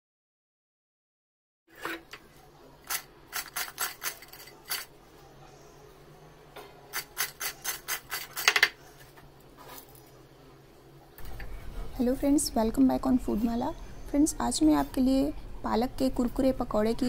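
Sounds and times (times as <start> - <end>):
fried snacks crackling in a bowl: 2.9 - 4.9.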